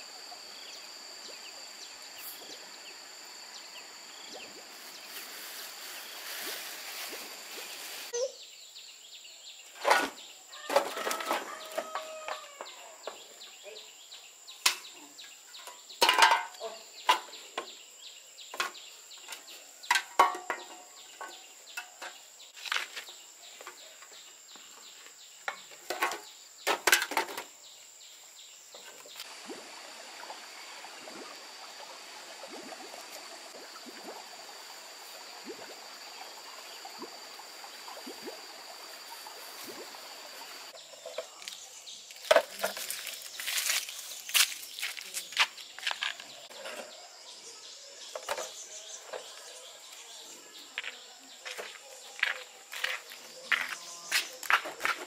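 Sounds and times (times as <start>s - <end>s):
steady outdoor hiss: 0.0s - 55.0s
bamboo poles knocking together: 18.5s - 23.8s, 25.5s - 27.5s, 42.2s - 43.2s
shuffling sandal steps: 41.4s - 46.5s, 50.8s - 55.0s.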